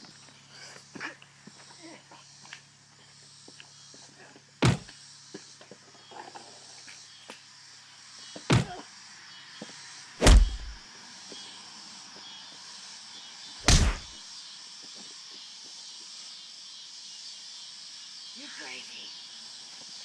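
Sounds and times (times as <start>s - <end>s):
loud sharp bangs: 10.2s - 10.8s, 13.6s - 14.1s.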